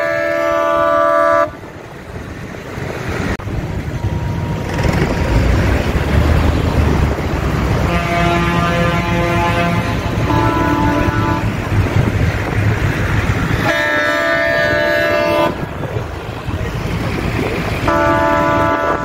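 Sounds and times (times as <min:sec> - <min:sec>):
tractor horn blasts: 0:00.0 - 0:01.6, 0:07.8 - 0:11.6, 0:13.6 - 0:15.7, 0:17.9 - 0:19.0
low engine rumble: 0:00.0 - 0:19.0.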